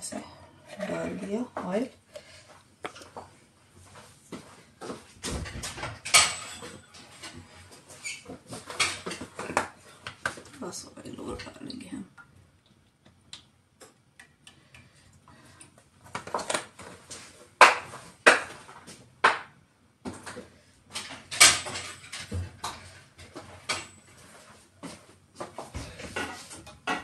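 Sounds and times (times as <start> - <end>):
utensils and containers clinking: 5.2 - 9.6, 20.9 - 24.2.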